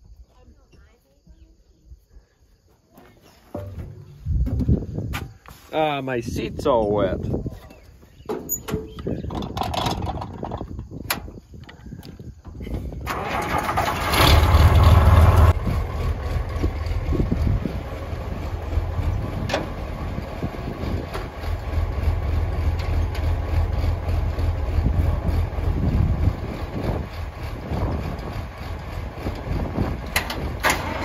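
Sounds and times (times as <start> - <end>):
clicks and knocks: 3.6 - 4.7
tractor engine starting and idling: 12.9 - 31.0.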